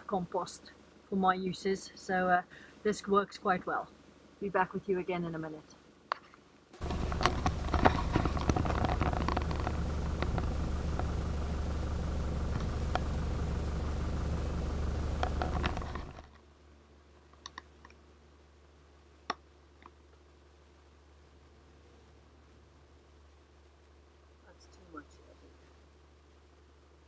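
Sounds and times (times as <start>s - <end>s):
clicks and rattles: 6.2s - 11.3s, 15.1s - 16.4s
vehicle engine rumbling: 6.8s - 16.3s.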